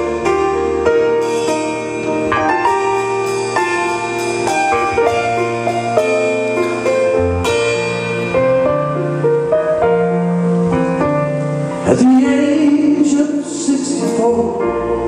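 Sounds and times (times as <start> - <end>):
live band music: 0.0 - 15.0
man singing: 11.8 - 15.0.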